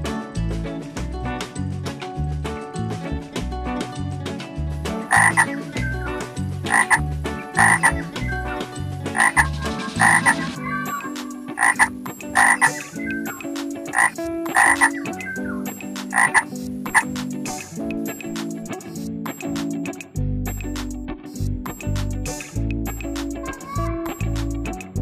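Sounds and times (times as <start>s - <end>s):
frogs croaking: 5.1s - 5.6s, 6.7s - 7.0s, 7.6s - 8.1s, 9.1s - 17.7s.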